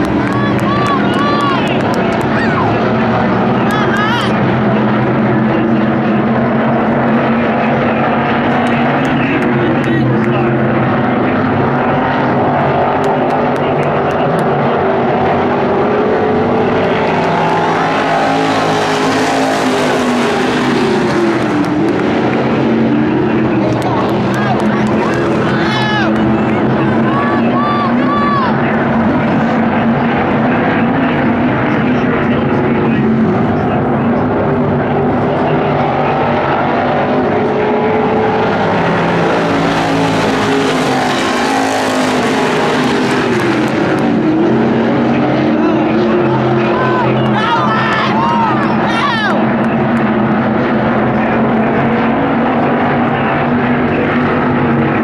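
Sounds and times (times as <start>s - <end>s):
stock car engines racing: 0.0s - 55.0s.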